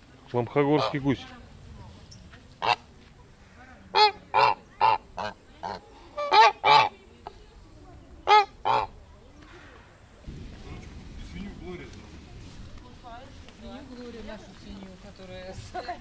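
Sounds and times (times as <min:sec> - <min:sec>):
goose honking: 0:00.6 - 0:01.2, 0:02.6 - 0:02.9, 0:03.9 - 0:07.0, 0:08.2 - 0:09.0.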